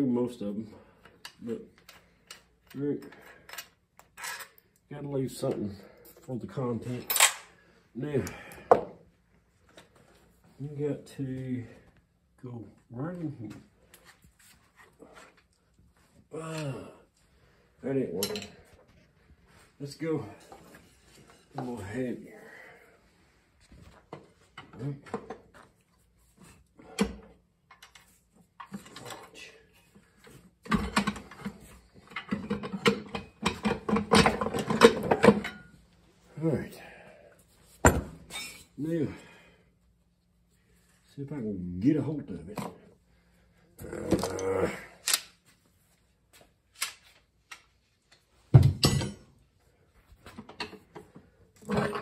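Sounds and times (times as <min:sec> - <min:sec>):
metal clicks and clanks: 0:30.6 - 0:35.7.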